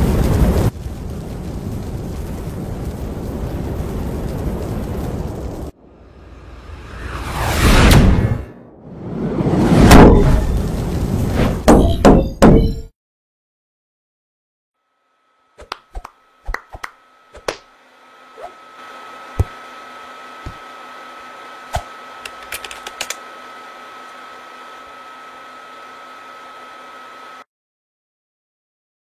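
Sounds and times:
computer fan whirring with whine: 0:14.8 - 0:27.5.

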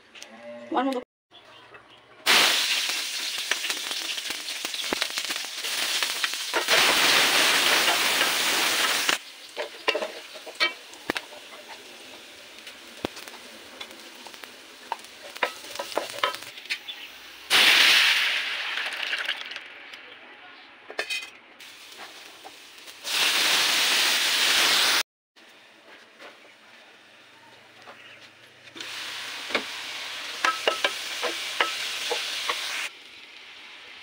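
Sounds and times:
food sizzling in hot oil: 0:02.3 - 0:19.6, 0:21.6 - 0:25.0, 0:28.8 - 0:34.0.

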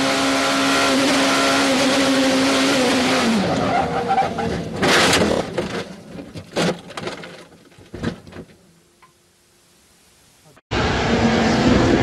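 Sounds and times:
knocks and clatters: 0:04.5 - 0:08.6.

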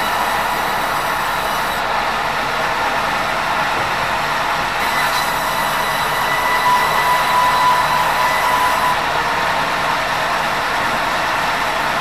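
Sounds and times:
band saw cutting timber: 0:00.0 - 0:01.9, 0:04.2 - 0:09.4.

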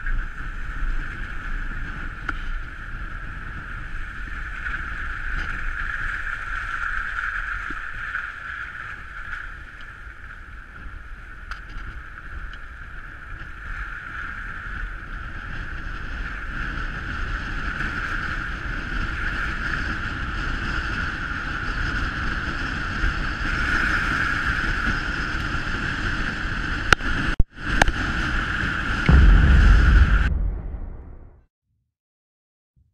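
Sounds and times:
wind noise on microphone: 0:00.0 - 0:31.4
loud low boom: 0:29.1 - 0:31.4.

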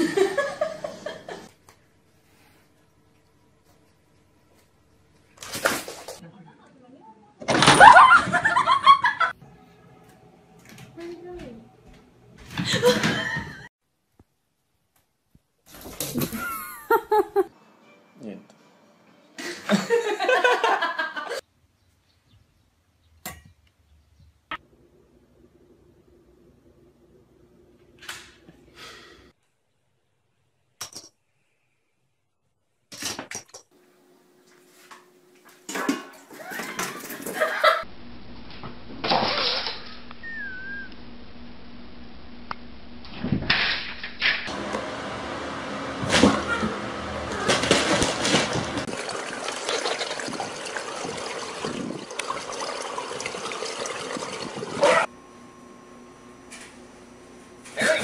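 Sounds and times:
pool water sloshing and splashing: 0:47.6 - 0:55.1.

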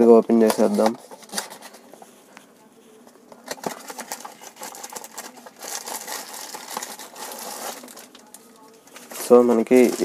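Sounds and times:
plastic bag crinkling: 0:03.4 - 0:10.0.

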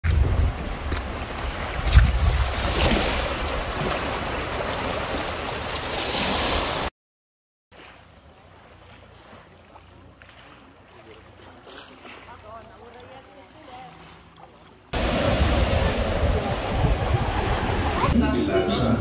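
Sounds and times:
wind buffeting microphone: 0:00.0 - 0:03.8, 0:15.0 - 0:18.2
waves washing over pebbles: 0:00.0 - 0:06.9, 0:14.9 - 0:18.2.

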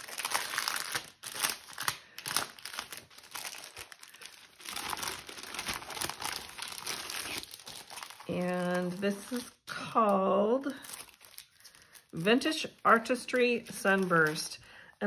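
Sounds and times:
paper and card rustling: 0:00.0 - 0:09.6, 0:10.8 - 0:14.6
cellophane crinkling: 0:00.0 - 0:14.6.

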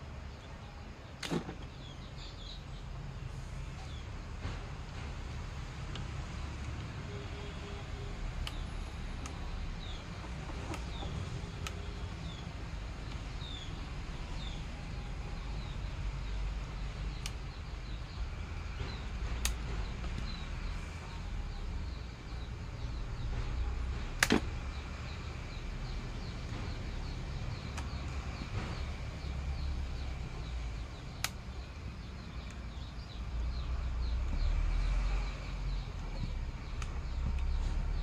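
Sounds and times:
sharp clicks or snaps: 0:18.8 - 0:20.4, 0:24.2 - 0:24.8, 0:30.9 - 0:31.6.

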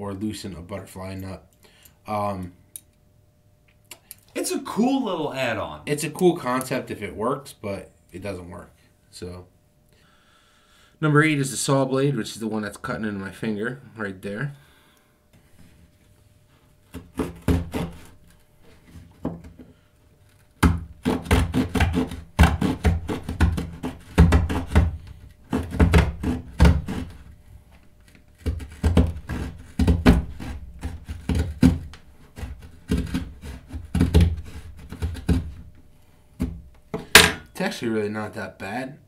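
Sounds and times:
small saw cutting wood: 0:16.9 - 0:18.2, 0:21.0 - 0:24.9, 0:25.5 - 0:27.2, 0:28.3 - 0:35.5.

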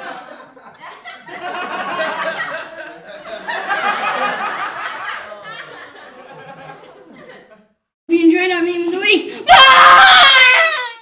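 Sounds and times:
children laughing: 0:00.0 - 0:07.6.

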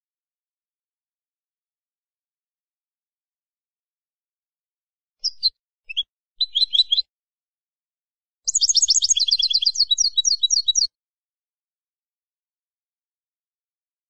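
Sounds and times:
goldfinch chirping and twittering: 0:05.2 - 0:07.1, 0:08.5 - 0:10.9.

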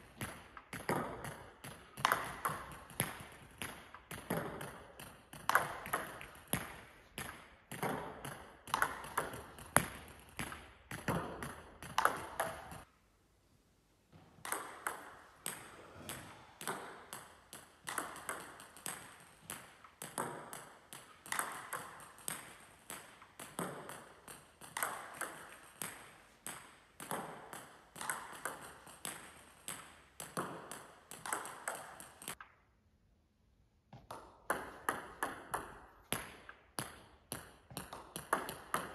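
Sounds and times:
table tennis ball clicks: 0:14.4 - 0:32.6.

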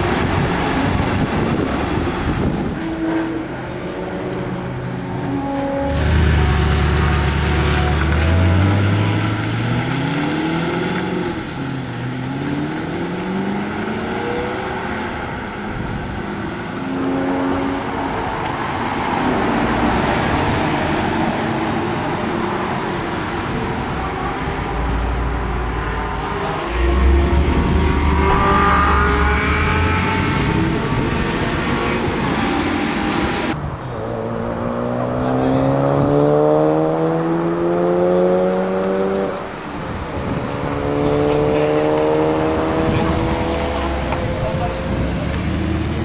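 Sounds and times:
deep engine rumble: 0:01.2 - 0:10.4, 0:23.3 - 0:32.5
sports car engine accelerating: 0:02.8 - 0:15.5, 0:22.9 - 0:46.0.

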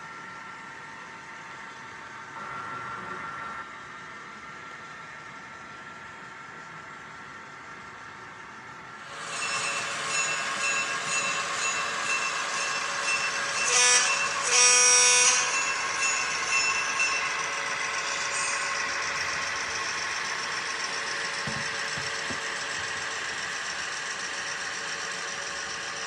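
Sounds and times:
model train running: 0:09.0 - 0:26.0
train horn blasts: 0:13.6 - 0:15.7.

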